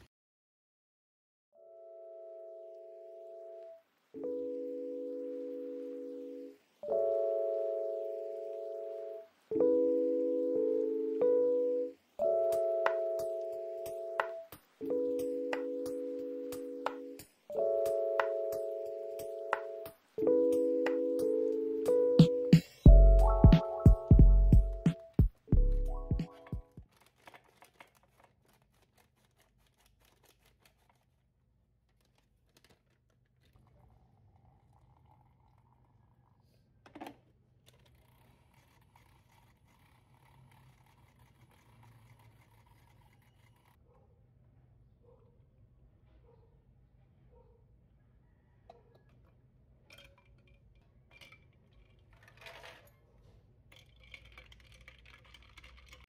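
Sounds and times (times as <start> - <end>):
plastic pouch crinkling: 26.4 - 33.6.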